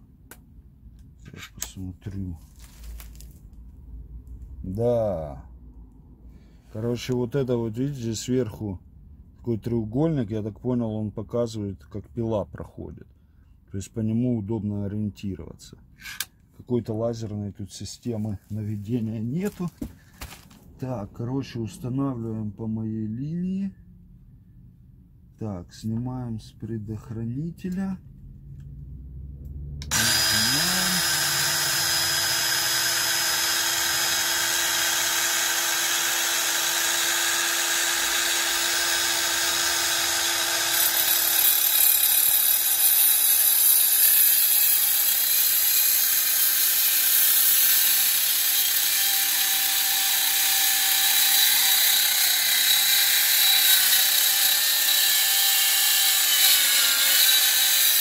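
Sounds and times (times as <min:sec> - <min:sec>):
circular saw whining: 0:29.8 - 0:58.0
saw cutting wooden board: 0:29.8 - 0:58.0.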